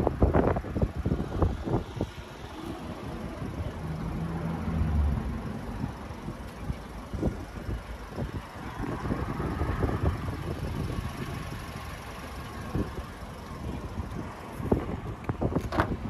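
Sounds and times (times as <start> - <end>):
wind buffeting microphone: 0.0 - 3.8, 5.6 - 12.0, 12.6 - 16.0
vehicle engine rumble: 0.0 - 16.0.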